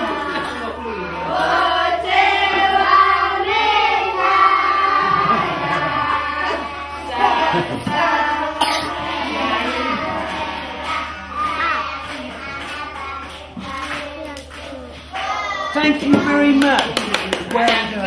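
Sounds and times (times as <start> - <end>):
children singing together: 0.0 - 15.8
hand clapping: 9.5 - 15.3, 16.1 - 18.0.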